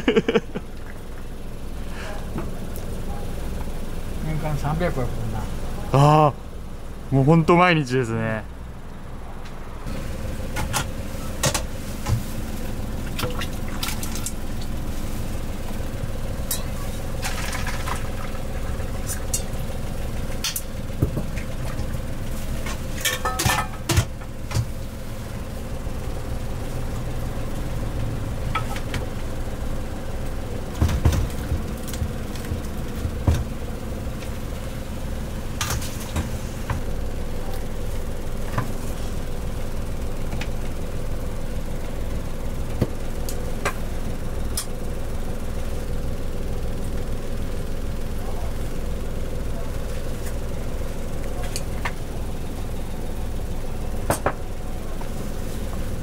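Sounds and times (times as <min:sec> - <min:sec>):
low mechanical hum: 0:00.0 - 0:56.0
metal pots and lids clinking: 0:23.0 - 0:24.1.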